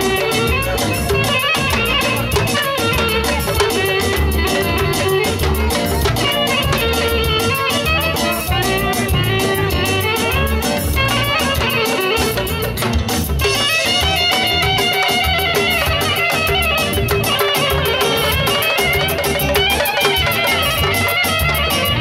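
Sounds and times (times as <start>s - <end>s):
dance music with guitar and drums: 0.0s - 22.0s.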